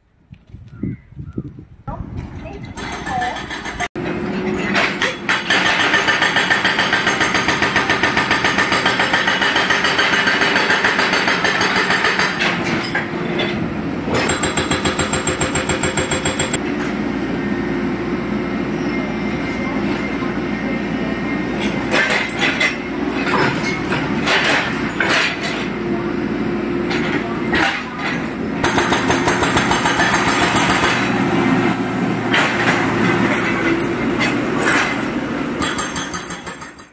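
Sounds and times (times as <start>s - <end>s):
excavator engine running: 2.6s - 36.9s
hydraulic breaker hammering concrete: 4.8s - 12.9s, 14.1s - 16.6s, 26.8s - 31.4s, 32.2s - 36.9s.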